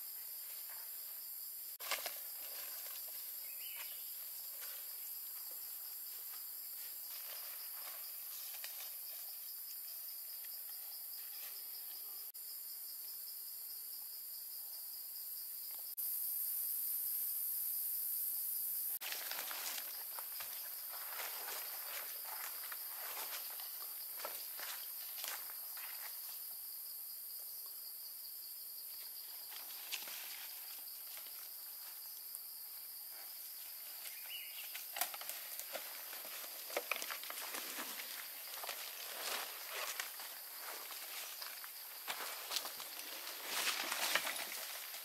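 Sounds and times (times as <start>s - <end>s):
footsteps on leafy dirt trail: 1.8s - 9.1s, 19.0s - 26.2s, 33.7s - 45.0s.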